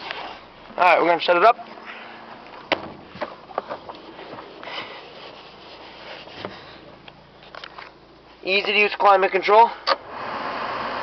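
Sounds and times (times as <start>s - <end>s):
handheld camera rubbing and rustling: 0.0s - 0.5s, 3.1s - 8.0s.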